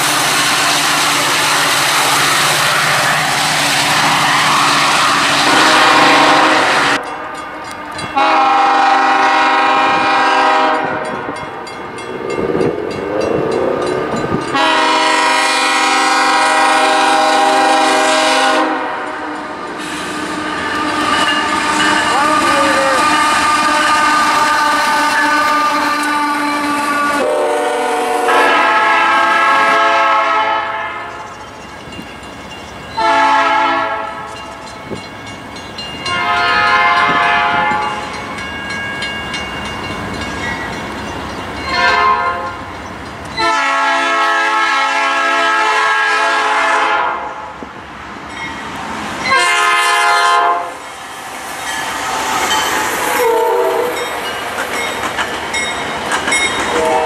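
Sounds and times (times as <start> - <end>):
freight train rumbling past: 0.0 - 57.0
locomotive air horn blasts: 0.5 - 3.3, 4.0 - 7.1, 7.7 - 11.4, 14.5 - 31.2, 33.0 - 34.4, 36.0 - 38.1, 41.7 - 42.6, 43.4 - 47.5, 49.3 - 50.8, 53.1 - 54.1, 56.7 - 57.0.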